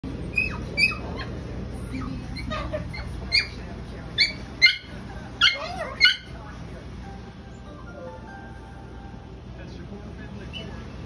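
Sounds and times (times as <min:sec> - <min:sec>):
small dog yipping: 0:00.3 - 0:03.6, 0:04.2 - 0:06.4.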